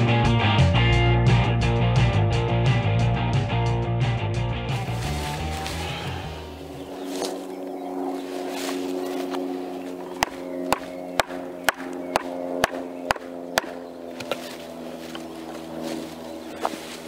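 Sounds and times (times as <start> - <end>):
background music: 0.0 - 7.0.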